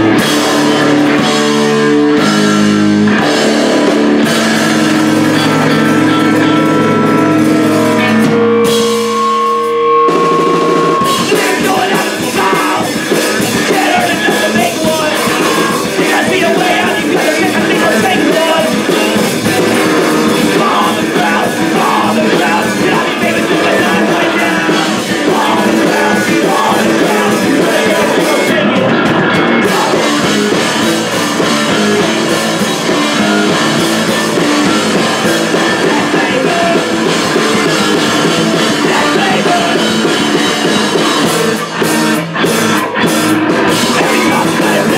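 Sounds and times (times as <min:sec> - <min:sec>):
held electric guitar notes: 0:00.0 - 0:12.2
punk rock band playing: 0:00.0 - 0:44.9.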